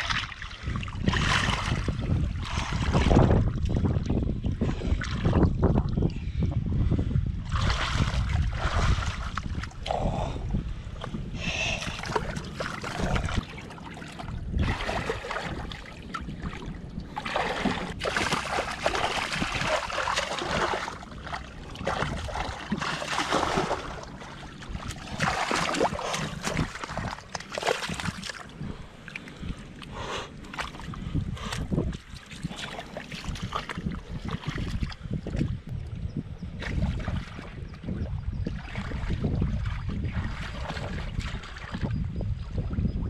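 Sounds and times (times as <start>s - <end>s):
hands splashing in shallow water: 17.2s - 28.5s.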